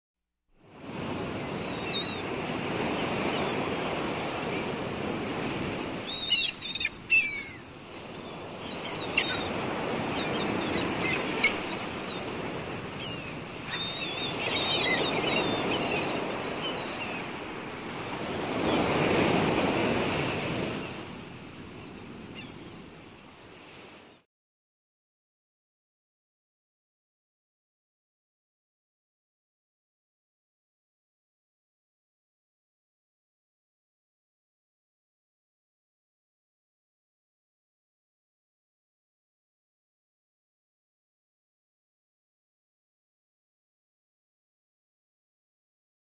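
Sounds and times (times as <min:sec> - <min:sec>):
sea waves washing onto shore: 0:00.7 - 0:24.0
birds chirping: 0:01.0 - 0:22.8.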